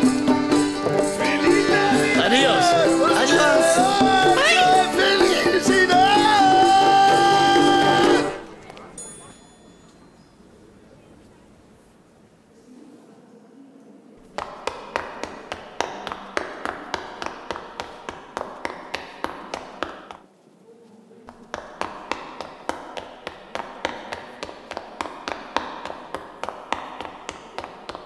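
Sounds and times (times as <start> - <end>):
hard-soled footsteps: 14.2 - 28.0.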